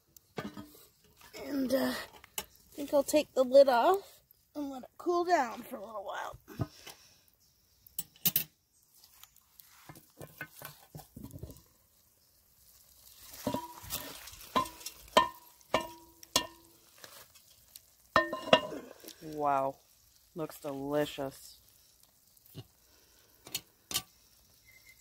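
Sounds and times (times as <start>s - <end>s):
soft food sizzle: 0.0s - 25.0s
metal scrapes and knocks: 0.4s - 1.3s, 9.8s - 11.6s, 13.4s - 16.6s, 18.2s - 18.8s.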